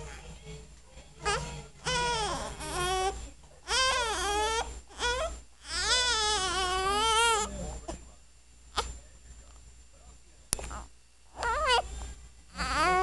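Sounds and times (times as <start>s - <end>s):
newborn baby crying: 1.2s - 7.5s, 11.4s - 11.9s, 12.6s - 13.0s.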